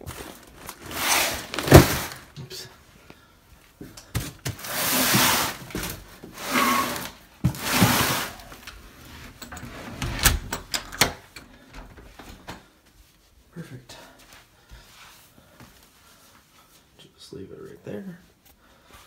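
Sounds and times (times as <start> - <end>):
cardboard box scraping on tile: 0.7 - 2.3, 4.5 - 8.5.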